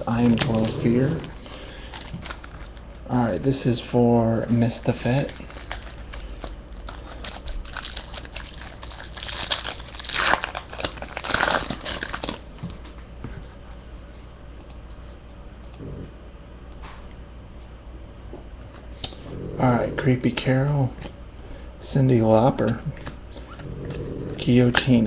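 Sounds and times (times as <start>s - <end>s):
wrapper tearing and crinkling: 0.0s - 3.0s, 5.1s - 12.4s.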